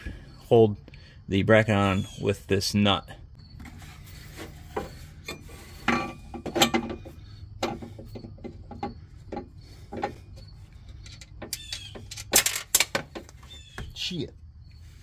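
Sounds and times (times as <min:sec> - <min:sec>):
metal clicks and scrapes: 0:03.6 - 0:13.5.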